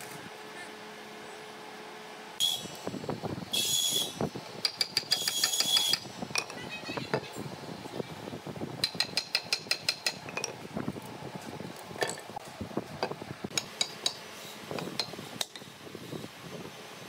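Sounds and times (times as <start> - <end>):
hammer tapping metal: 8.8 - 10.5, 13.5 - 14.2.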